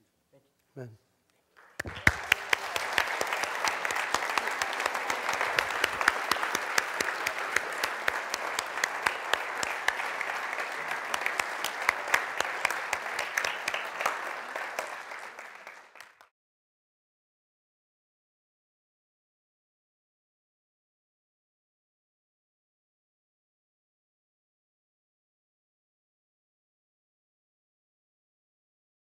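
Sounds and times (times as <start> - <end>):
congregation clapping: 1.5 - 16.3.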